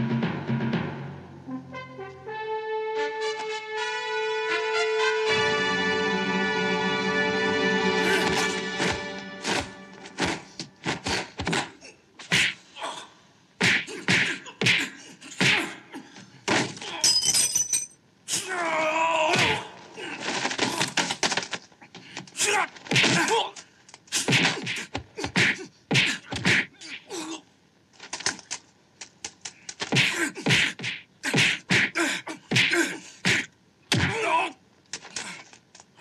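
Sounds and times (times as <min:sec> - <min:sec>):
punch and kick impacts: 0:08.9 - 0:12.6, 0:13.6 - 0:15.7, 0:22.9 - 0:23.4, 0:24.2 - 0:26.7, 0:29.8 - 0:34.3
fighters grunting: 0:18.4 - 0:21.0, 0:30.0 - 0:34.6.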